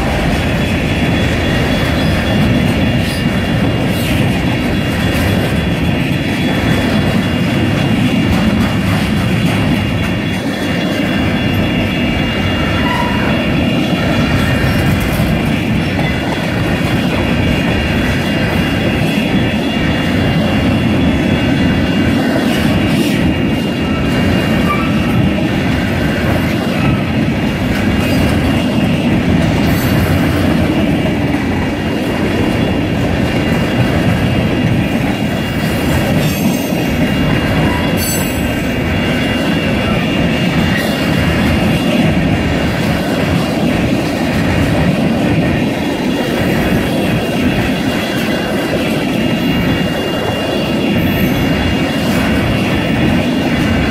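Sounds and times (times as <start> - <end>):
train wheels clattering on rails: 0.0 - 53.9.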